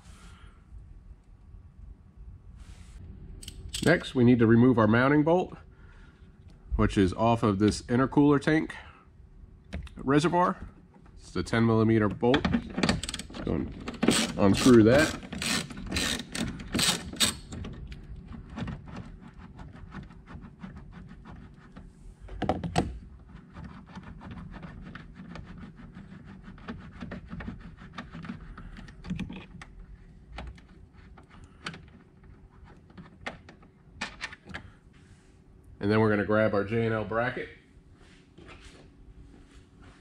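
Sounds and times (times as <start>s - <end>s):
ratchet clicking: 13.9s - 17.5s.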